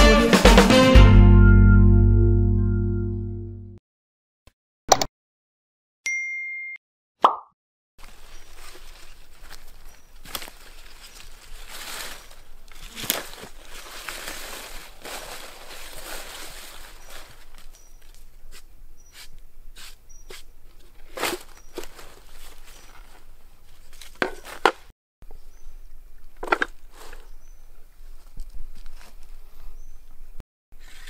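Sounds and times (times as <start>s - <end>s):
dry leaves rustling and crunching: 8.0s - 18.6s, 20.9s - 24.7s.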